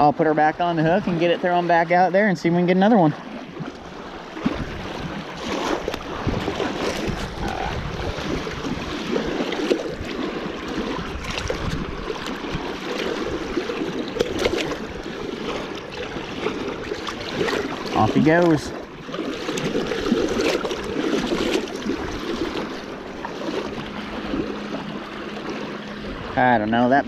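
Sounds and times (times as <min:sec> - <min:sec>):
waves lapping against rocky shore: 0:00.0 - 0:27.0
wind buffeting microphone: 0:03.2 - 0:27.0.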